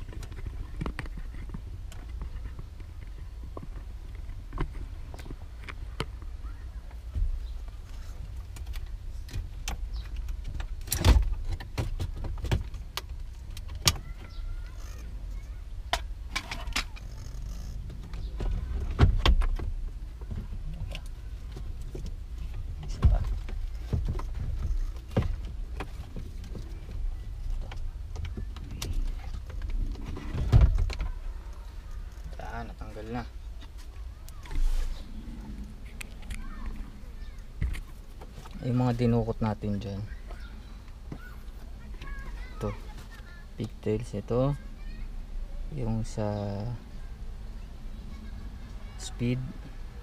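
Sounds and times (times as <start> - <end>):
steady low rumble: 17.1 - 43.9.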